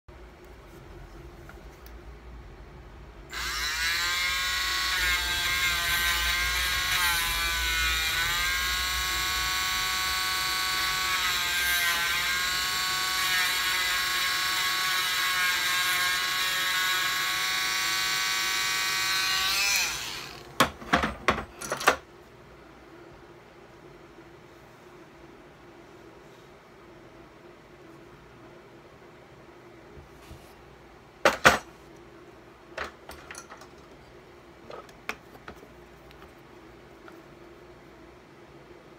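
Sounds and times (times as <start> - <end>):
rotary tool whining: 3.3 - 20.6.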